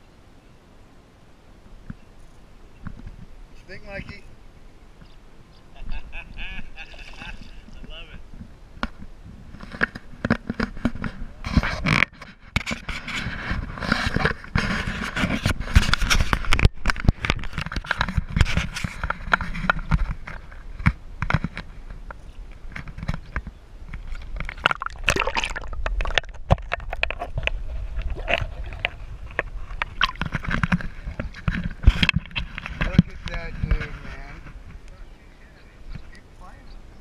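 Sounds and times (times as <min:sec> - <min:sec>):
knocks and scrapes against boat: 0:07.6 - 0:34.8
water splashing around kayak: 0:22.5 - 0:34.6.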